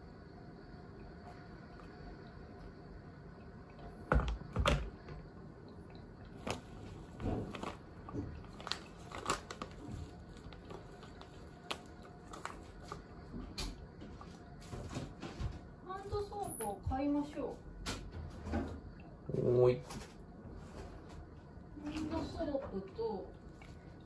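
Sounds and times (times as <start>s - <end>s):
kettle set down on base: 4.1s - 5.2s
foil bag crinkling: 6.4s - 13.0s.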